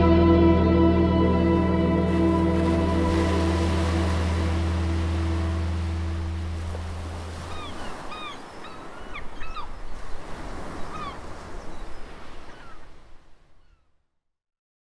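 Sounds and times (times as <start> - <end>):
low sustained note: 0.0 - 7.6
birds chirping: 5.0 - 12.9.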